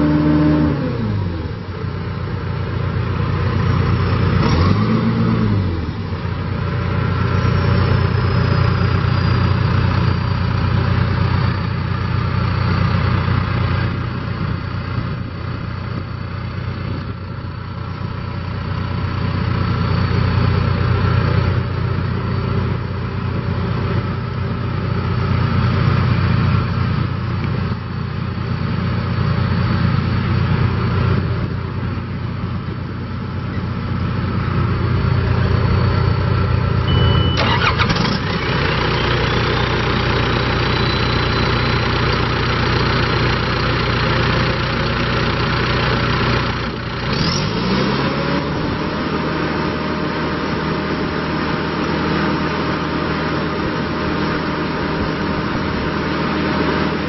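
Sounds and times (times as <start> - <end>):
diesel engine running: 0.0 - 57.0
faint high whine: 6.2 - 43.2.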